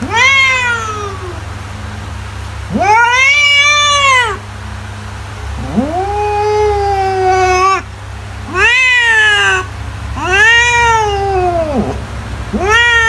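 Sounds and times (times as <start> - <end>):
cat meowing: 0.0 - 1.4, 2.7 - 4.4, 5.6 - 7.9, 8.5 - 13.0
low steady hum: 0.0 - 13.0.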